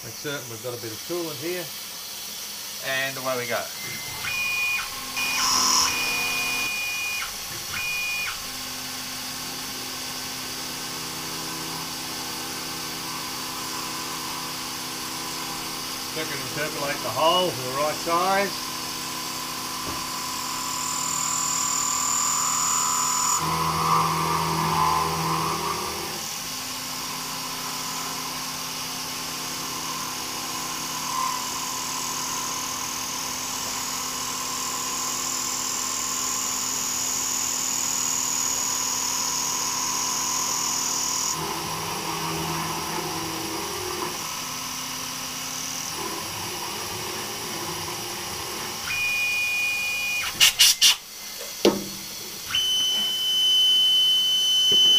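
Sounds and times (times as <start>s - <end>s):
milling machine whine: 0.2s - 54.9s
high whistle: 3.8s - 8.4s, 48.8s - 51.0s, 52.5s - 54.9s.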